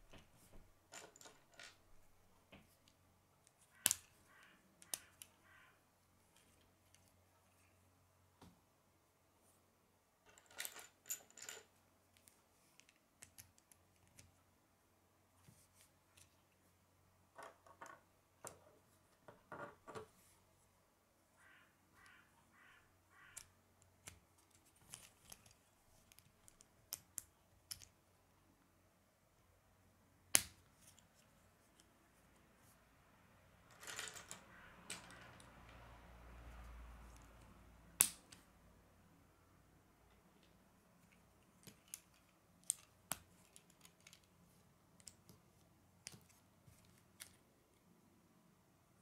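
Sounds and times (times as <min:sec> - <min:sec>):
plastic pieces clicking: 0:41.5 - 0:44.4.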